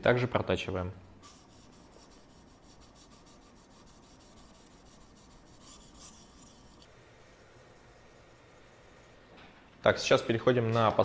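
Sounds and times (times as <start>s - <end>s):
sharpening stone rubbing knife edge: 1.2s - 9.2s.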